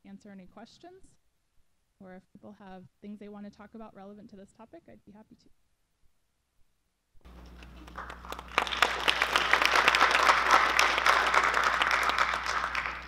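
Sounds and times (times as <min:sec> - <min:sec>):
low electrical hum: 0:00.0 - 0:13.0
audience applauding: 0:07.6 - 0:13.0.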